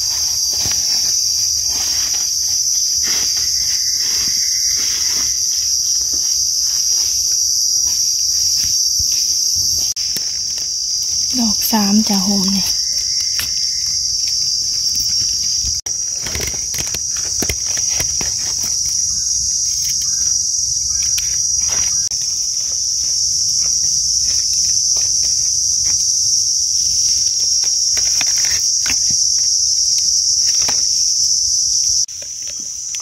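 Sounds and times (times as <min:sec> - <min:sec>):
knife in dry leaf litter: 0:00.0 - 0:25.1
insects droning: 0:00.0 - 0:33.0.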